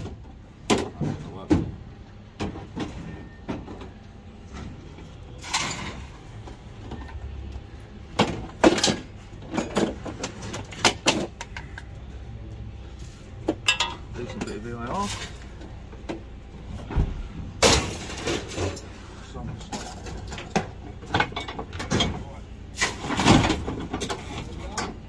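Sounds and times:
scrap metal knocking and clanking: 8.2s - 11.9s, 13.4s - 16.3s.

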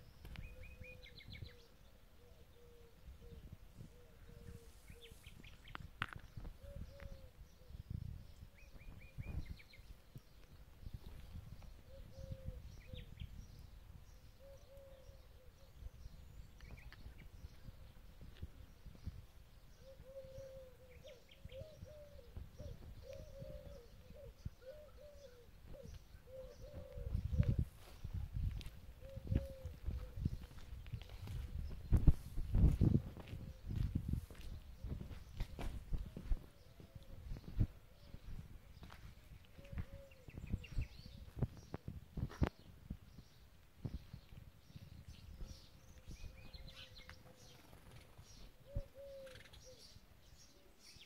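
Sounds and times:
bird chirps: 0.1s - 7.7s, 43.8s - 51.0s
repeated lower bird call: 19.7s - 28.1s.

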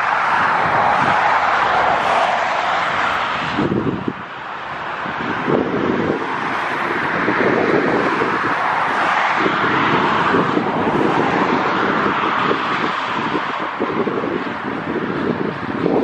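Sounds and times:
jet engines roaring: 0.0s - 16.0s
wind buffeting microphone: 0.0s - 16.0s.

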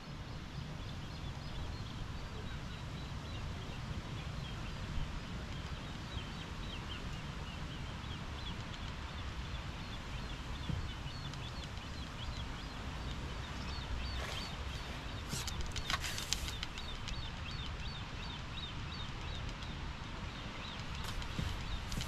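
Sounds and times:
small birds chirping: 0.0s - 22.0s
steady low rumble: 0.0s - 22.0s
sharp clicks and rustles: 14.3s - 17.8s, 20.7s - 22.0s.

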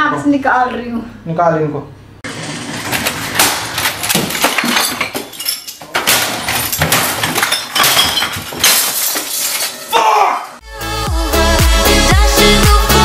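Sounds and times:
things being smashed: 2.3s - 10.0s
glass bottles clinking: 2.8s - 9.9s.

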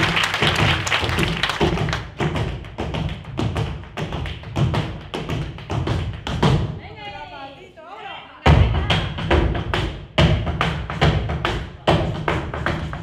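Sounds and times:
applause: 0.0s - 2.2s.

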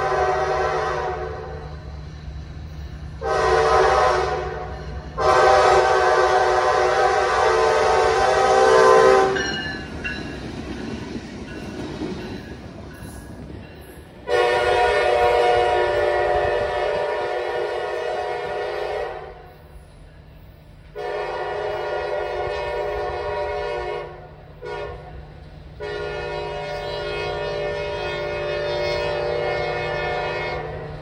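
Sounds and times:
locomotive air horn blasts: 0.0s - 1.6s, 3.2s - 9.4s, 14.2s - 19.5s, 20.9s - 31.0s
locomotive engine rumble: 0.0s - 31.0s
wheels clattering over rail joints: 9.4s - 14.2s.

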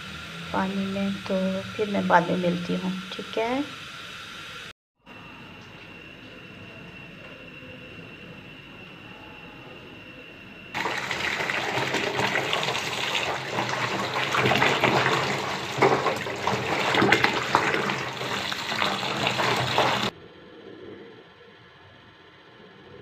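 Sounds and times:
tap water running into pot: 10.8s - 20.1s.

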